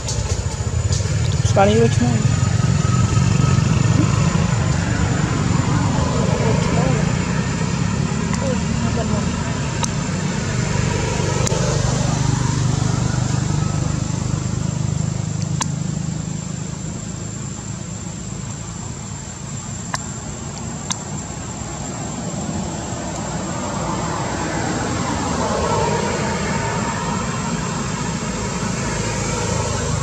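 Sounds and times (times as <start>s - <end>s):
faint high whine: 0.0s - 30.0s
outdoor background rumble: 0.0s - 30.0s
sharp clicks: 9.7s - 10.0s, 15.4s - 15.8s.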